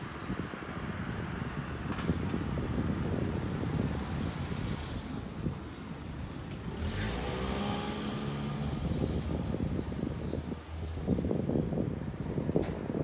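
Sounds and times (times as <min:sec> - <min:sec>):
vehicle engine passing: 0:06.1 - 0:11.1.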